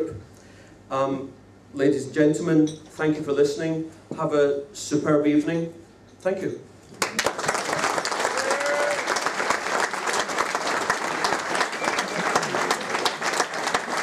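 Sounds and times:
audience applauding: 7.0s - 14.0s.

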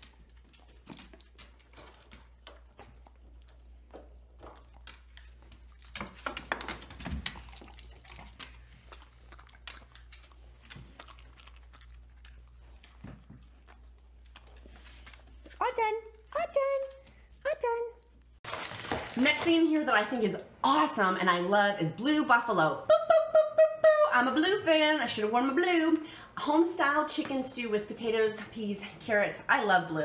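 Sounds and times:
dogs crunching treats: 0.0s - 17.4s.

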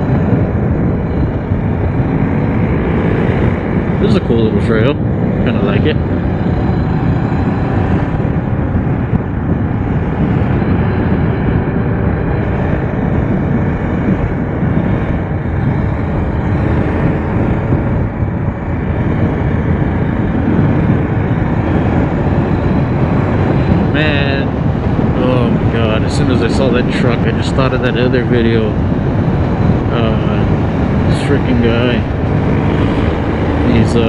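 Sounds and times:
motorcycle engine running: 0.0s - 34.0s
wind rushing over microphone: 0.0s - 34.0s.

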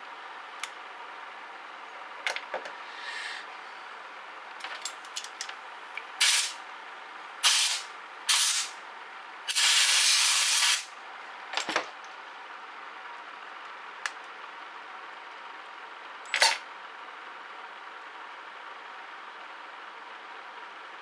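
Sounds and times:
compressed air hissing: 2.8s - 3.5s, 6.2s - 6.6s, 7.4s - 8.8s, 9.5s - 10.9s.

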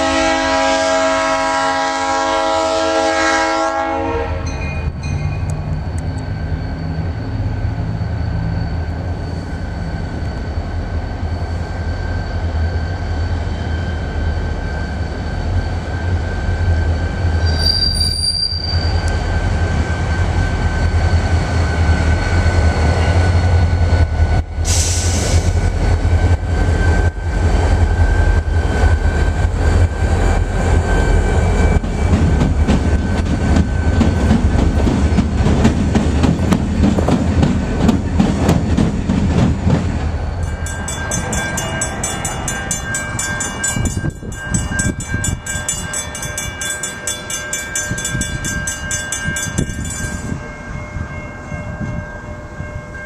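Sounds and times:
diesel locomotives rumbling: 0.0s - 53.0s
distant rail sound: 0.0s - 53.0s
thin high tone: 40.3s - 52.9s.

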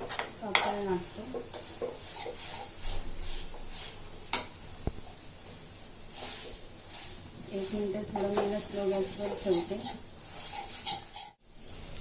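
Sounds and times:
metal spoon scraping metal pan: 0.0s - 3.9s, 6.2s - 11.4s
light sizzle: 0.0s - 12.0s.

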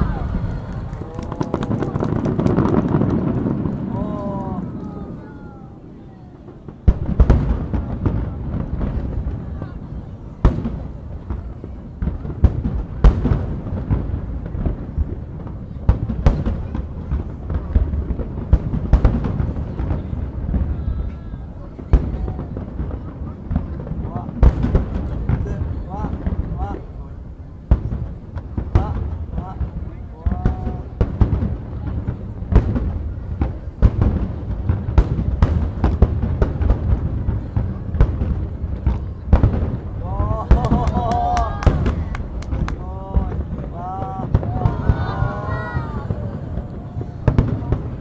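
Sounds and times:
firework shells bursting: 0.0s - 4.0s
firework pops: 0.0s - 5.2s, 10.4s - 26.9s, 27.6s - 45.2s
firework booms: 0.0s - 48.0s.

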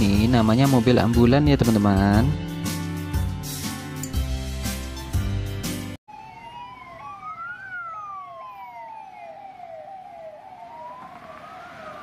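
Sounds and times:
background music: 0.0s - 6.0s
ambulance siren rising and falling: 6.1s - 12.0s
siren quick falling sweep: 6.1s - 12.0s.

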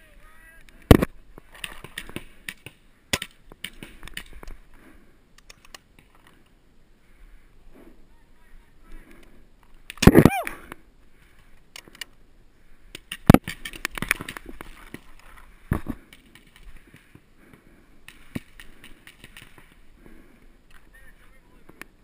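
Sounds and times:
person shouting: 10.1s - 10.6s.

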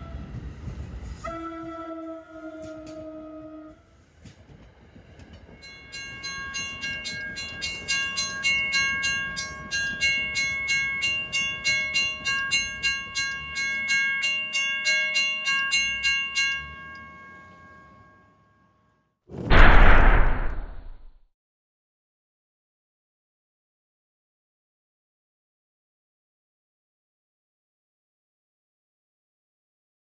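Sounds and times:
railroad crossing bell ringing: 5.2s - 19.0s
low rumble: 19.4s - 21.2s.

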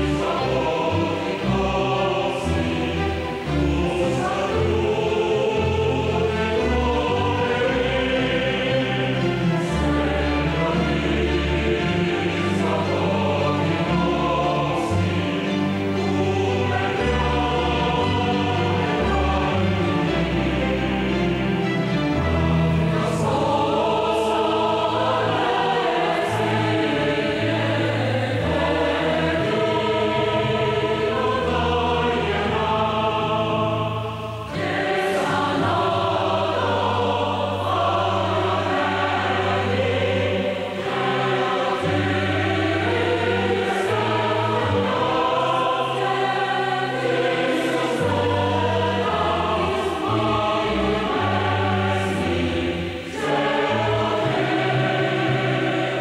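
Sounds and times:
choir singing: 0.0s - 56.0s.

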